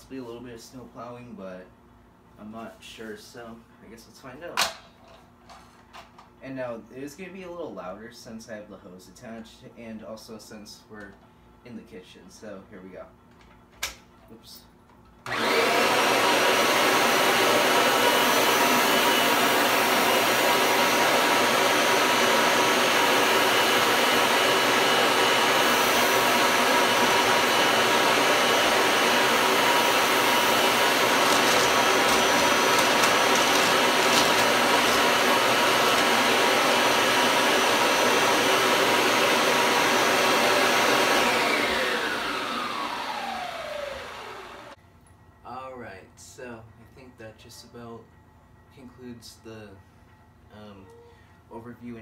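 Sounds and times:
vacuum cleaner running: 15.2 - 44.8
vacuum motor winding down: 15.3 - 44.8.

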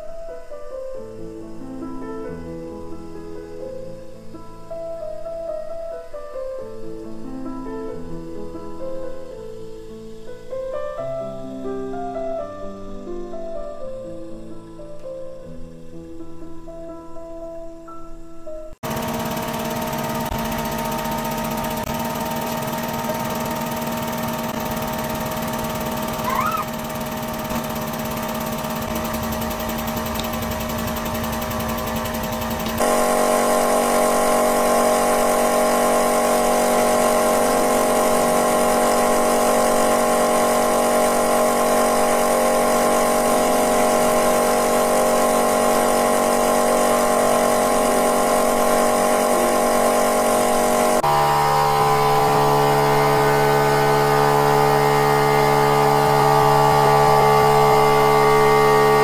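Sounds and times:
hydraulic press pump hum: 18.8 - 59.0
plastic bottle squeaking: 26.2 - 26.7.

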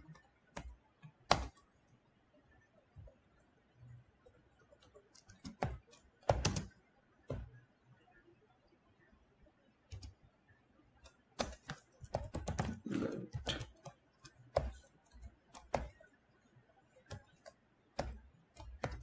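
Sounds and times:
keyboard typing: 0.0 - 1.8, 4.3 - 7.6, 9.9 - 10.2, 11.0 - 16.2, 16.9 - 19.0.

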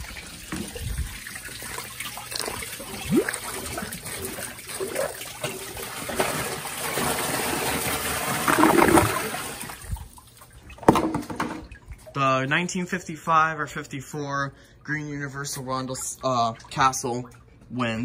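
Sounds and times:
water splashing and sloshing: 0.0 - 14.0, 14.6 - 18.0
plunger in toilet bowl: 0.4 - 12.1.

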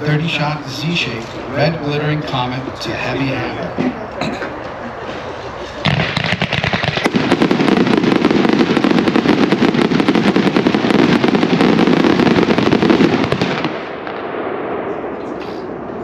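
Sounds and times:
fireworks bangs and crackling: 5.4 - 16.0.

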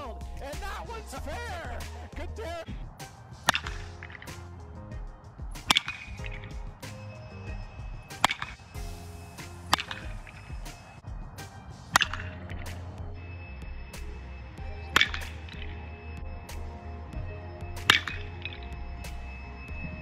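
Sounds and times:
background music: 0.0 - 20.0
bat cracking baseballs: 3.0 - 4.6, 5.5 - 7.2, 8.1 - 13.1, 14.8 - 15.8, 17.8 - 18.6.

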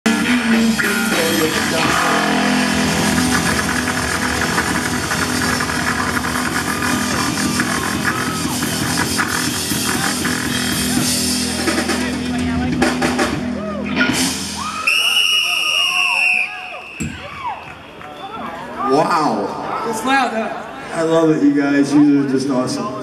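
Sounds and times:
electric guitars: 0.0 - 14.9
drum kit: 0.0 - 15.3.

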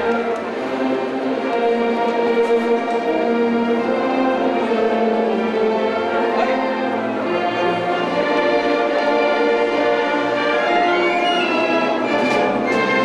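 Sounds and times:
orchestral music with held chords: 0.0 - 13.0.

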